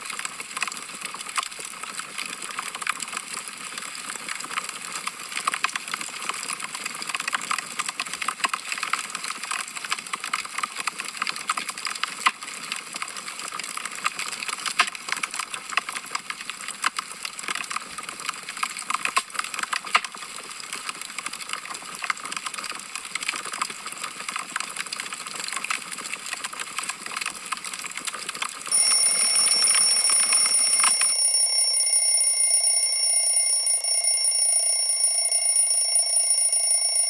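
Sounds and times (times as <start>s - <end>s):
high-pitched timer alarm ringing: 28.7s - 37.0s.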